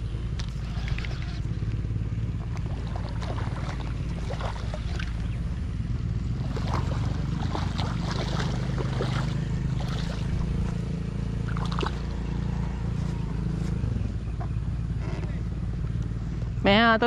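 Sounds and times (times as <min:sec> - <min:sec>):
steady low rumble: 0:00.0 - 0:17.0
fish splashing in water: 0:00.4 - 0:01.5, 0:02.4 - 0:05.6, 0:06.3 - 0:10.8, 0:11.4 - 0:12.5.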